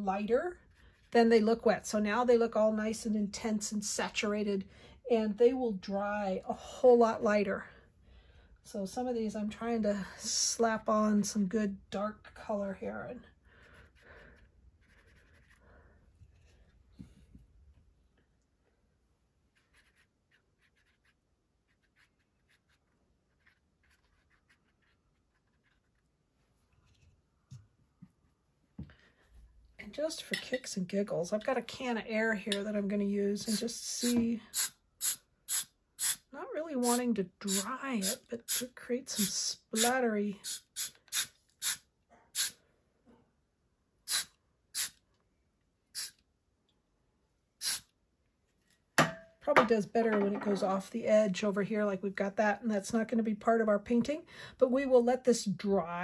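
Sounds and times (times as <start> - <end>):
brush swishing on paper: 14.8 - 15.6, 19.5 - 26.0
compressed air blasts hissing: 44.1 - 44.9, 47.6 - 47.8.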